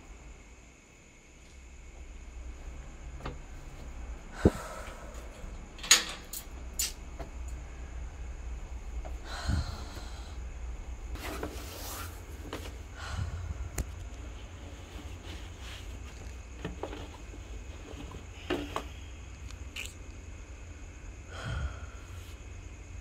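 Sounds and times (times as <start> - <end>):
rustling shuffle: 11.1 - 12.9, 13.8 - 18.8.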